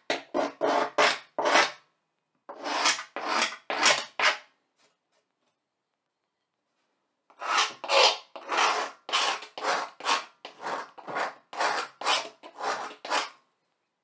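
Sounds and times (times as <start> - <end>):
tool scratching a blackboard: 0.1 - 1.8, 2.5 - 4.5, 7.3 - 13.4.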